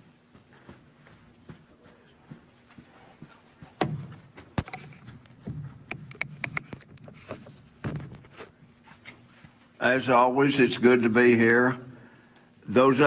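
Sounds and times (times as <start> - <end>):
steady low hum: 0.0 - 13.0
microphone stand clicks and knocks: 4.6 - 8.2.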